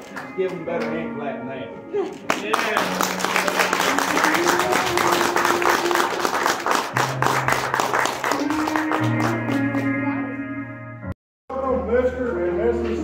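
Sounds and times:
crowd clapping and applauding: 0:00.0 - 0:00.9, 0:02.2 - 0:10.2
music with sustained notes: 0:00.0 - 0:13.0.

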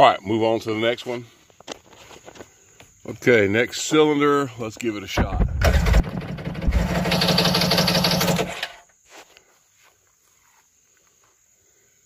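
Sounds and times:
engine cranking on starter: 0:05.3 - 0:08.8.

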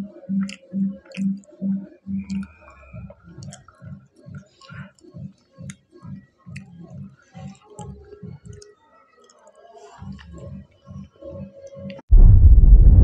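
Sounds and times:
wet mouth clicks: 0:00.4 - 0:01.5, 0:02.1 - 0:02.7, 0:03.3 - 0:05.8.

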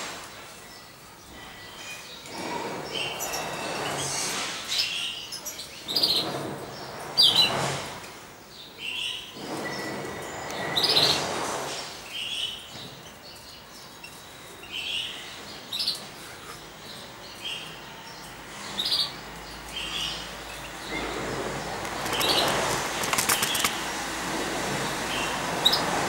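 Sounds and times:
goldfinches chirping: 0:12.2 - 0:23.8.

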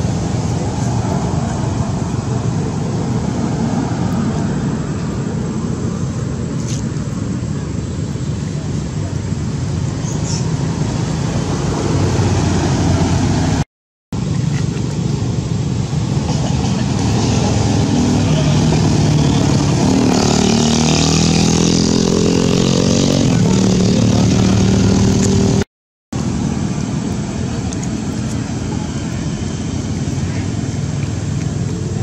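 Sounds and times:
outdoor noise: 0:00.0 - 0:32.0
vehicle engine running: 0:14.2 - 0:25.6.

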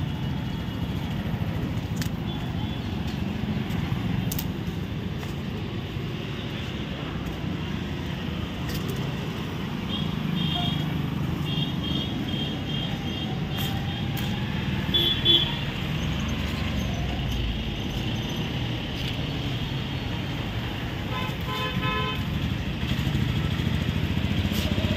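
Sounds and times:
street traffic passing: 0:00.0 - 0:24.9
vehicle horns tooting: 0:14.9 - 0:15.6, 0:21.1 - 0:22.3.

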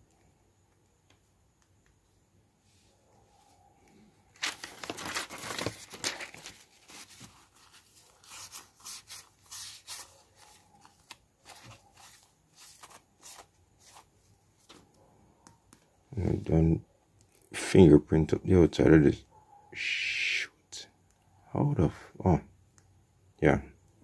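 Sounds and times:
tissue rubbing on screen protector: 0:04.4 - 0:14.8.

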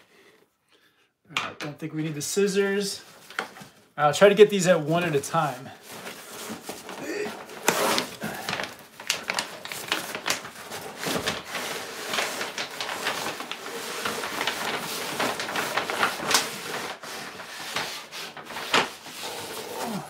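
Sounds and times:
cardboard and paper scraping: 0:05.8 - 0:20.0.

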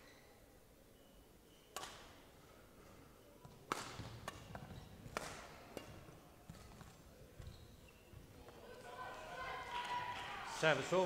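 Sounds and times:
racket striking shuttlecock: 0:01.8 - 0:02.2, 0:03.7 - 0:06.9.

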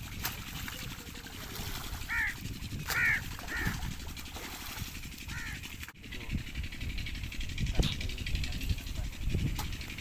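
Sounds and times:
water flowing in a channel: 0:00.0 - 0:06.0
bird calls: 0:02.0 - 0:04.2, 0:05.2 - 0:05.9.

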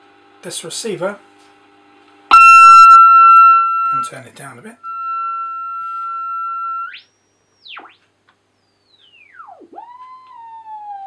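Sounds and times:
radio heterodyne whistle: 0:02.3 - 0:04.2, 0:04.8 - 0:08.0.

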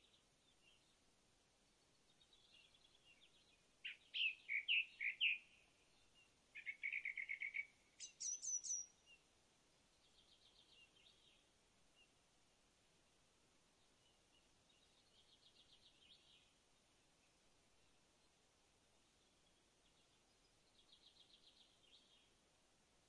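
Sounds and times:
songbird singing: 0:00.0 - 0:12.4, 0:13.5 - 0:22.5
faint steady hiss: 0:00.0 - 0:23.0
faint bird twittering: 0:01.9 - 0:09.2.

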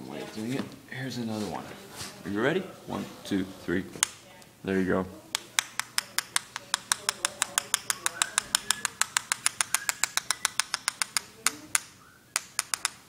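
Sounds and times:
paintbrush tapping on handle: 0:05.3 - 0:13.0.

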